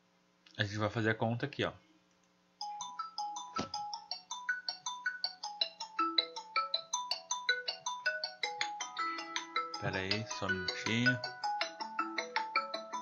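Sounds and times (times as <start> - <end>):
phone ringtone melody: 2.6 - 13.0.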